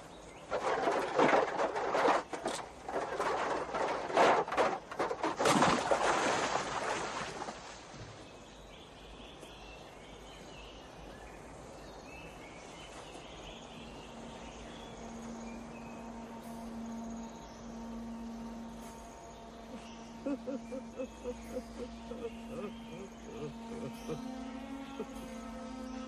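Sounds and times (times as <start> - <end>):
bundle tumbling down rocky slope: 0.4 - 8.2
big splash in river: 5.3 - 8.3
faint bird chirps: 8.2 - 26.0.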